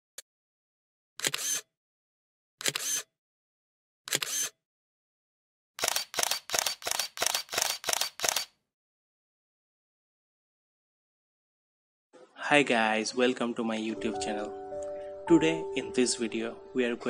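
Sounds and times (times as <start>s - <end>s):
camera shutter clicking: 1.2s - 1.7s, 2.6s - 3.1s, 4.1s - 4.6s, 5.8s - 8.6s.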